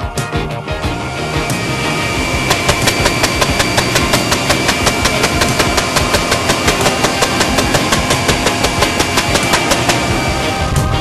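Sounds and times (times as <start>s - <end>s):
helicopter rumble: 0.7s - 11.0s
helicopter cannon firing: 2.2s - 10.9s.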